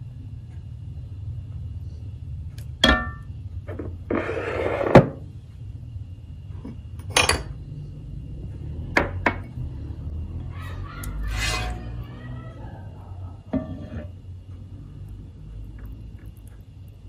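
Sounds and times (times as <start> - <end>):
steady low hum: 0.0 - 17.0
glass bowl clinking: 2.8 - 3.3
glass bowl scraping: 3.7 - 5.0, 11.3 - 11.9, 13.5 - 14.2.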